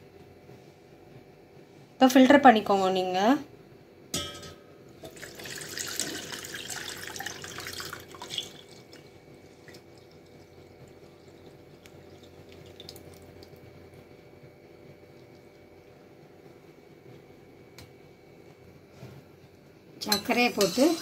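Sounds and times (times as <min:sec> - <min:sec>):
water pouring through strainer: 0:05.0 - 0:13.6
water trickling and dripping: 0:05.0 - 0:13.8, 0:15.0 - 0:15.7.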